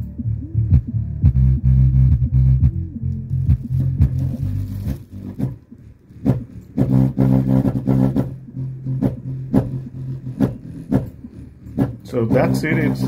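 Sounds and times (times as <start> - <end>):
song through small speaker: 0.0 - 13.0.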